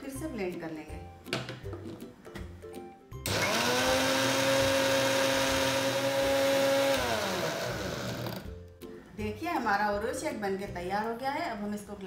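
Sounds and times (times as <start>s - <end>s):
electric blender motor whining: 3.2s - 8.5s.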